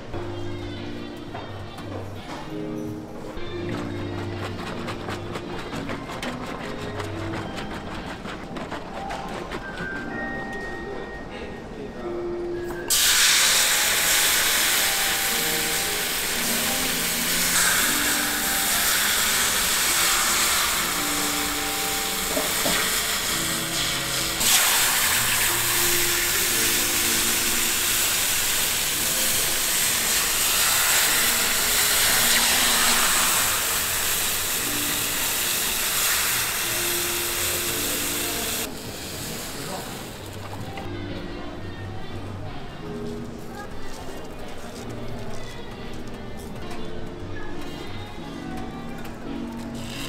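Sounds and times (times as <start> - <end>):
faint background music: 0.0 - 50.0
batter sizzling in hot pan: 12.9 - 40.0.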